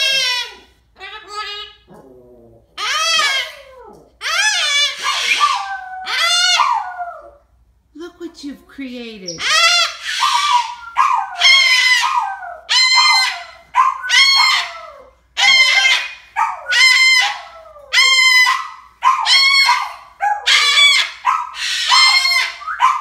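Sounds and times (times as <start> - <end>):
cockatoo calling loudly: 0.0 - 2.0, 2.8 - 7.3, 9.3 - 23.0.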